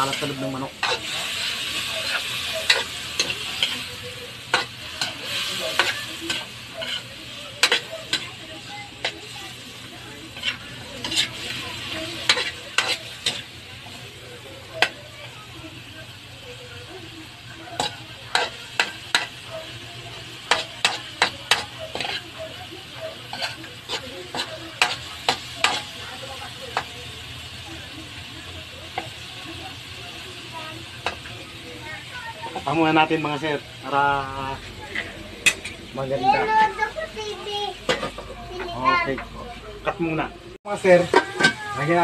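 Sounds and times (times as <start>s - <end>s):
metal ladle scraping a pan: 0.0s - 8.3s, 10.3s - 13.5s
chicken sizzling in a wok: 0.0s - 42.0s.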